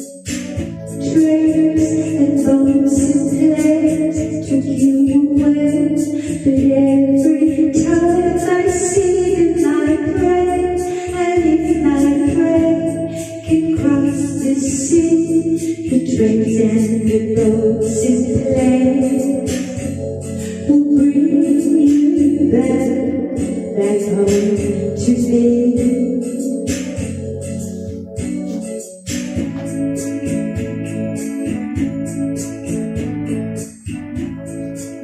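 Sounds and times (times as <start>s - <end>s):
karaoke backing track: 0.0s - 35.0s
woman singing pop ballad: 0.9s - 27.2s.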